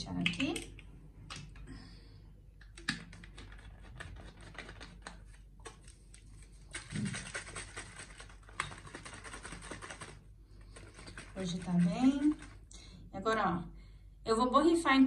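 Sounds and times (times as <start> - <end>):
liquid sloshing in shaken bottle: 2.8 - 12.7.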